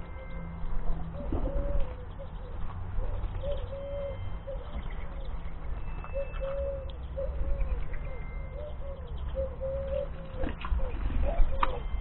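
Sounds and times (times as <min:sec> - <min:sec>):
dove cooing: 0:00.0 - 0:12.0.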